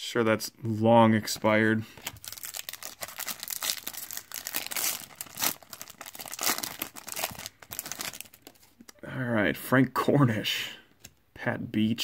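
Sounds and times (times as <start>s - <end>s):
foil wrapper tearing and crinkling: 2.1s - 8.7s.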